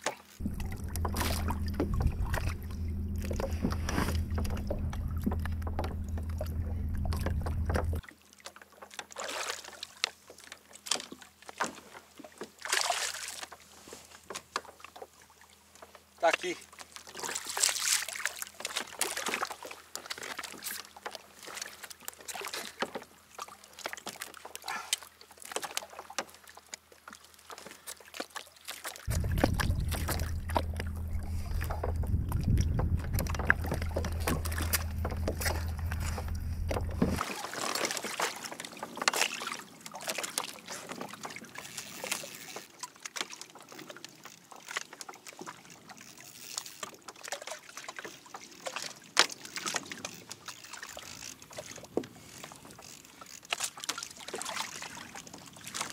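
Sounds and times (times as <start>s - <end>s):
water sloshing around a kayak: 0.0s - 55.9s
knocks and splashes: 0.4s - 8.0s, 8.7s - 13.6s, 27.5s - 41.6s
steady low hum: 0.4s - 8.0s, 29.1s - 37.2s.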